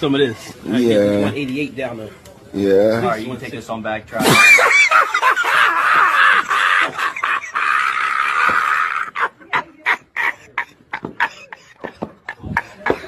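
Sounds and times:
man laughing hysterically: 0:04.3 - 0:13.0.

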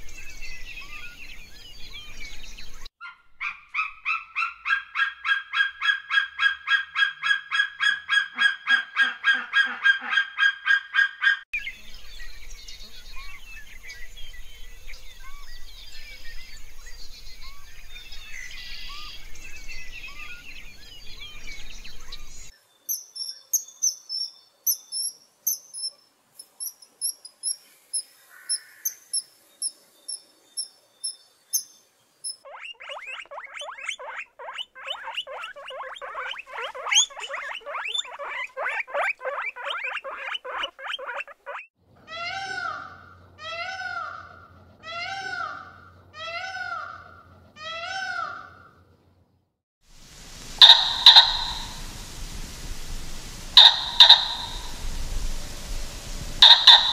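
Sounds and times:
birdsong: 0:00.0 - 0:41.8, 0:50.1 - 0:56.9
fast loud chattering calls: 0:32.3 - 0:41.7, 0:50.4 - 0:52.2, 0:52.9 - 0:56.9
high-pitched kingfisher calls: 0:32.3 - 0:41.7, 0:50.6 - 0:52.3, 0:53.0 - 0:55.4, 0:56.4 - 0:56.9
peacock crying loudly: 0:42.1 - 0:48.6, 0:50.6 - 0:52.0, 0:53.6 - 0:54.9, 0:56.4 - 0:56.9
insects buzzing: 0:50.0 - 0:56.9.

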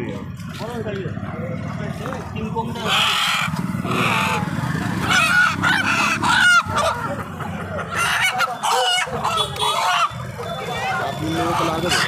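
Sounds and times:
chickens squawking: 0:02.6 - 0:12.0.

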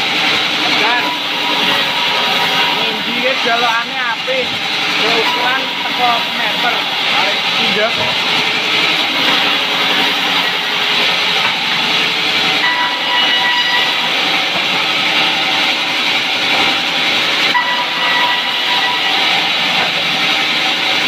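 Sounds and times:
band saw cutting wood: 0:00.0 - 0:21.0
thin whine: 0:17.5 - 0:20.5.

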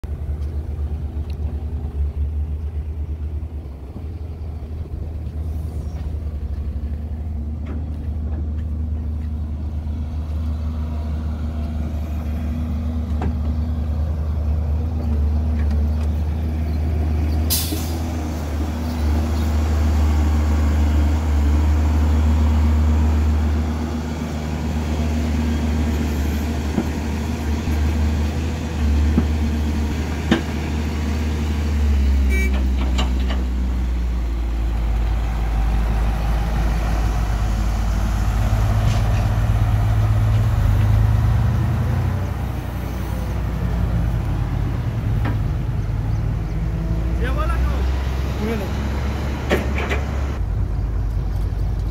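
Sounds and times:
heavy diesel engines rumbling: 0:00.0 - 0:51.9
air brake hiss: 0:17.5 - 0:18.0.

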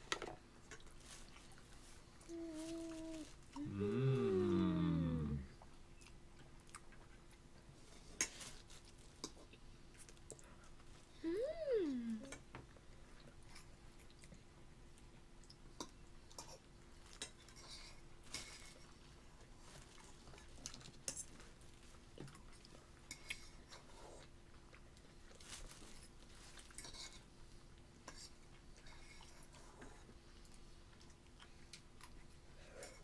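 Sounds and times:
faint hum: 0:01.2 - 0:08.0, 0:09.6 - 0:13.7.

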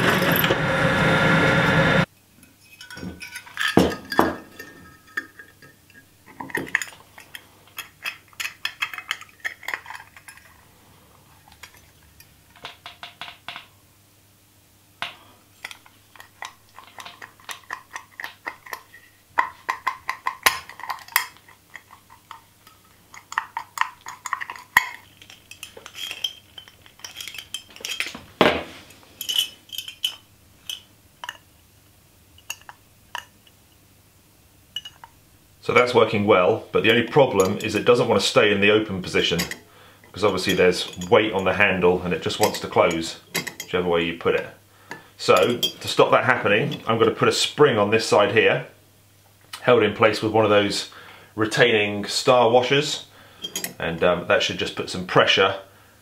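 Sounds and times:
small steel parts clinking: 0:02.4 - 0:10.6, 0:11.3 - 0:13.7, 0:15.0 - 0:31.5, 0:32.3 - 0:33.6, 0:34.7 - 0:35.2, 0:36.8 - 0:43.8, 0:44.9 - 0:46.0, 0:53.4 - 0:53.8.

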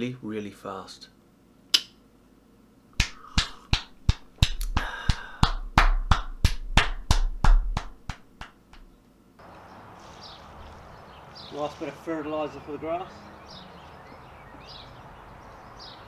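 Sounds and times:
sharp snaps or claps: 0:01.7 - 0:02.0, 0:03.0 - 0:08.9.

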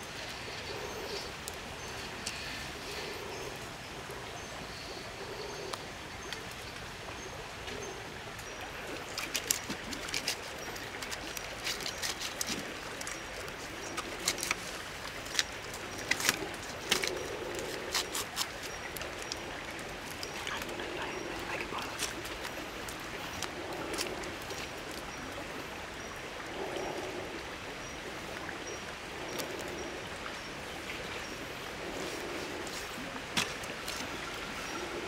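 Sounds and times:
steady background hiss: 0:00.0 - 0:35.0
knife scraping scaly skin: 0:09.2 - 0:19.0.

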